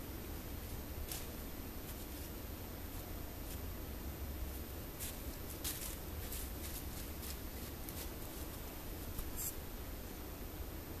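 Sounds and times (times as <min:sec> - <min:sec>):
dry leaves crackling underfoot: 0:00.6 - 0:03.7, 0:04.4 - 0:09.6.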